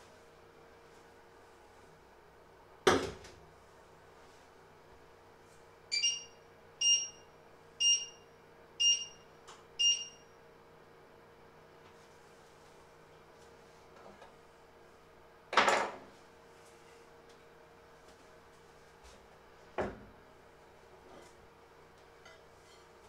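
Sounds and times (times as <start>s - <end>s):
short high electronic beeps: 5.9s - 7.2s.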